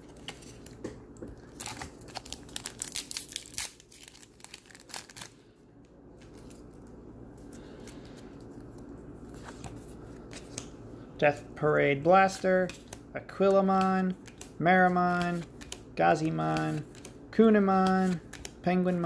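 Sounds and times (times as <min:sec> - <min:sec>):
foil pack crinkling and tearing: 0:01.4 - 0:05.4
cards being handled: 0:06.2 - 0:10.8, 0:11.9 - 0:19.0.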